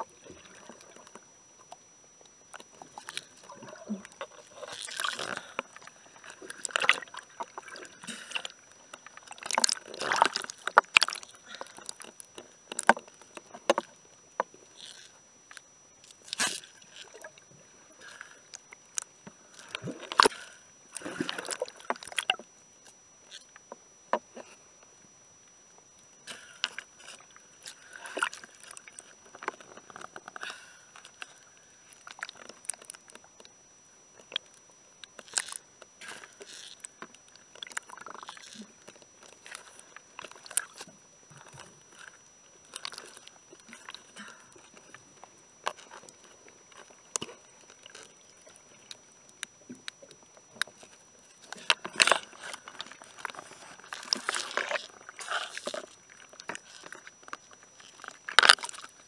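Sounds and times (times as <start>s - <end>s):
underwater hull scrubbing: 0.0s - 13.8s, 35.1s - 59.0s
faint high whine: 0.0s - 59.0s.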